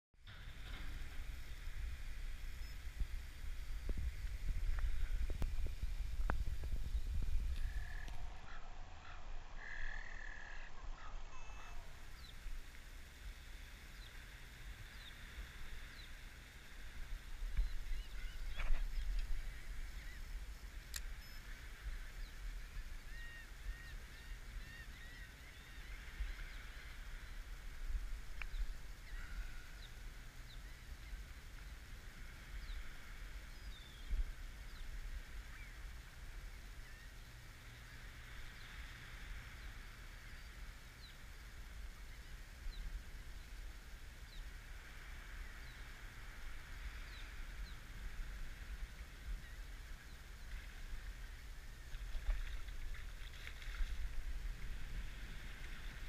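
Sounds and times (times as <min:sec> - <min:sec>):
wind rumbling on microphone: 0:00.2 - 0:56.0
flock of birds chirping: 0:00.3 - 0:43.6
birds chirping: 0:06.6 - 0:12.5.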